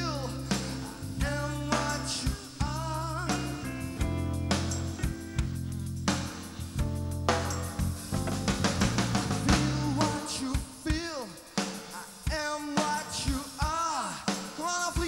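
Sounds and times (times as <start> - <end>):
held bass notes: 0.0 - 10.3
bass drum: 0.0 - 11.2
keyboards: 0.0 - 15.0.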